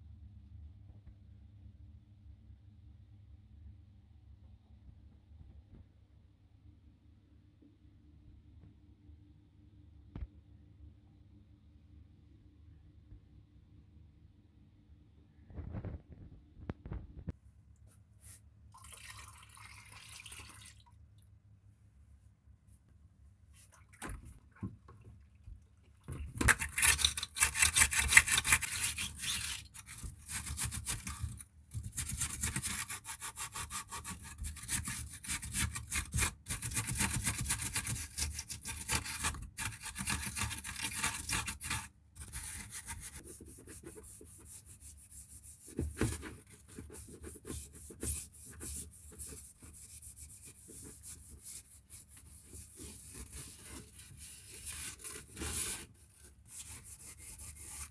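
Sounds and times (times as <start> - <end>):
scouring pad scrubbing plastic: 23.6 - 57.9.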